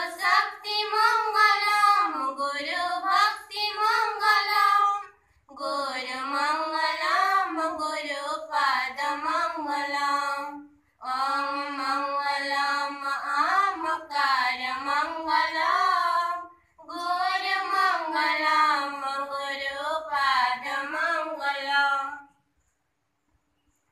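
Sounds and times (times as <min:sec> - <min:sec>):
children singing in unison: 0:00.0 - 0:22.2.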